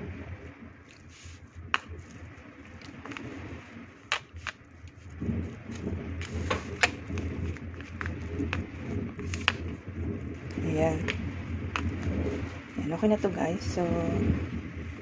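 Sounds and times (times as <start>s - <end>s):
low steady hum: 0.0s - 15.0s
rice paddle patting rice: 4.0s - 4.6s, 5.7s - 9.7s
foil tray clicks: 6.2s - 8.6s.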